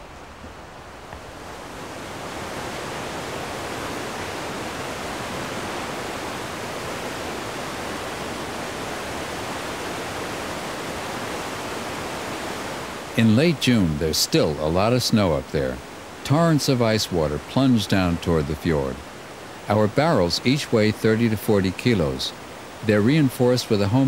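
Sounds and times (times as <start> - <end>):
water rushing over rocks: 0.0 - 24.0.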